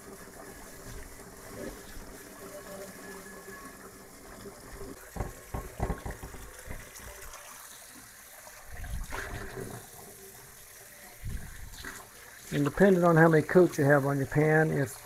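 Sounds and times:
water running from faucet: 0.0s - 15.0s
sharp knocks: 5.2s - 6.5s.

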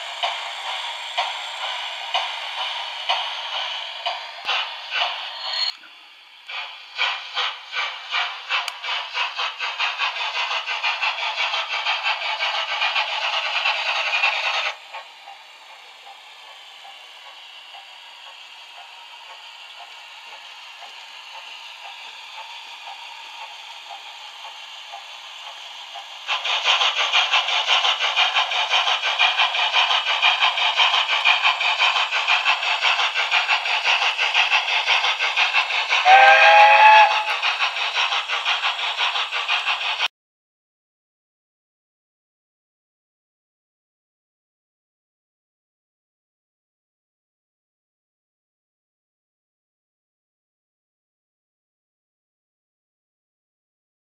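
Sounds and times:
steam locomotive chuffs from speaker: 0.0s - 40.1s.

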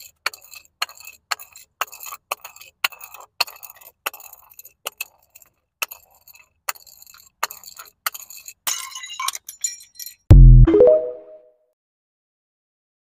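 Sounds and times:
bottle clinking down concrete steps: 7.5s - 10.3s.

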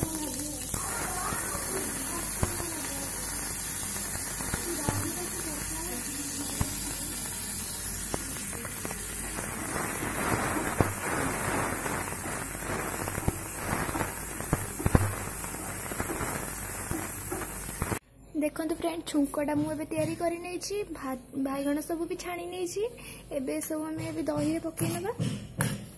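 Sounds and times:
spices sizzling and popping in oil: 0.0s - 18.0s.

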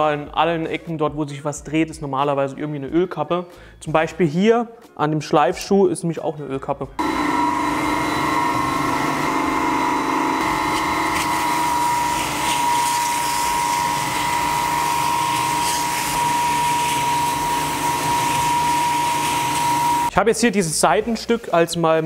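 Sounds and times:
belt sander humming and whining: 7.0s - 20.1s
scratchy hiss of sanding wood: 10.6s - 22.0s.

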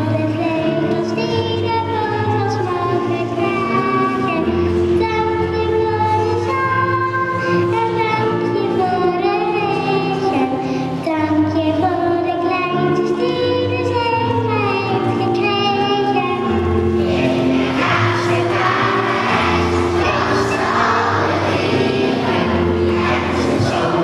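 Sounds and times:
acoustic guitar: 0.0s - 24.0s
children singing: 16.4s - 24.0s.

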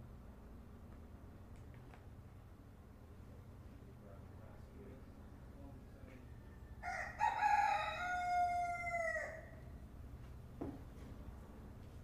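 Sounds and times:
rooster crowing: 6.4s - 9.7s.

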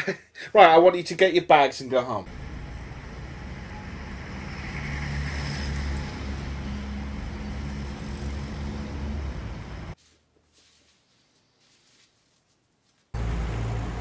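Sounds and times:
vehicle engine rumbling: 2.2s - 10.0s, 13.2s - 14.0s
traffic noise hiss: 2.3s - 10.9s.

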